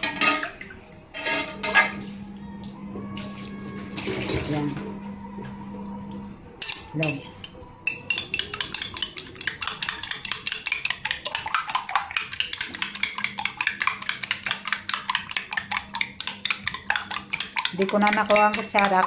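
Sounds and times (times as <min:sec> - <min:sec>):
fork beating eggs in a bowl: 0:06.6 - 0:19.0.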